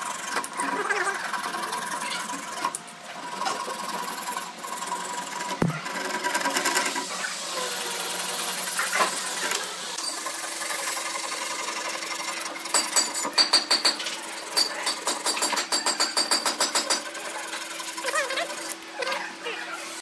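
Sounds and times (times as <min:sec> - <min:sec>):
sharp knock: 0:05.6 - 0:05.8.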